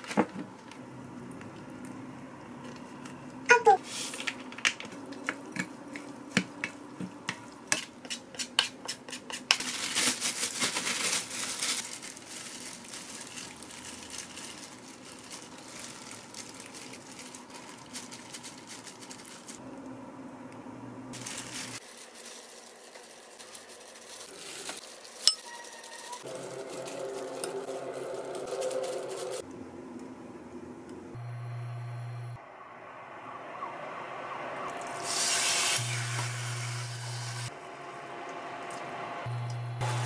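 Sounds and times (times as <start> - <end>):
spatula scraping and stirring rice: 5.6 - 9.7.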